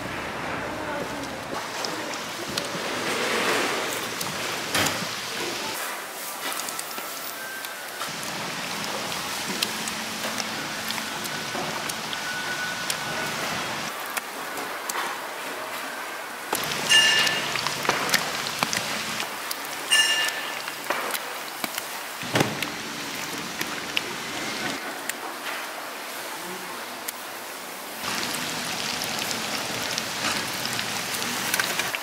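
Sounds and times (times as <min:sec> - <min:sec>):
deep-frying sizzle: 0:01.5 - 0:14.2, 0:16.5 - 0:24.8, 0:27.8 - 0:32.0.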